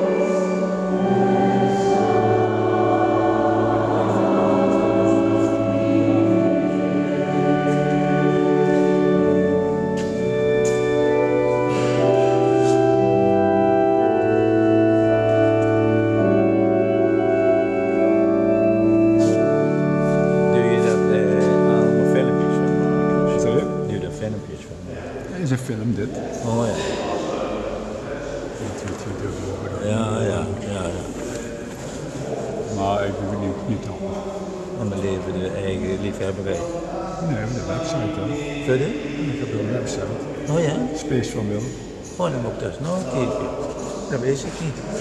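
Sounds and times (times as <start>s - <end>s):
choir singing: 0.0s - 24.1s
church organ playing chords: 0.0s - 25.2s, 32.2s - 45.0s.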